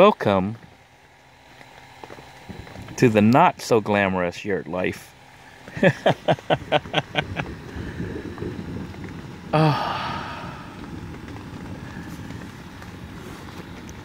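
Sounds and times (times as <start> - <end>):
steady low hiss: 0.0 - 14.0
man sighing: 9.5 - 10.9.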